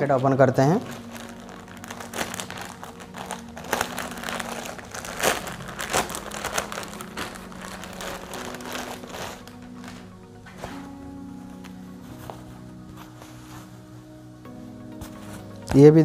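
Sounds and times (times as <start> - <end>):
plastic packet crinkling: 0.6 - 10.3.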